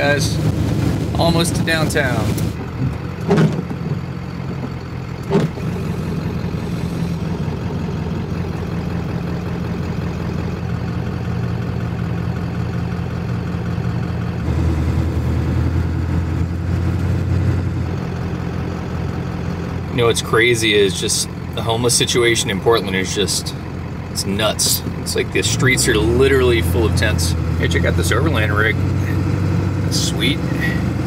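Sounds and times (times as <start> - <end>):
diesel engine rumbling: 0.0 - 31.0
short knocks: 2.7 - 5.7.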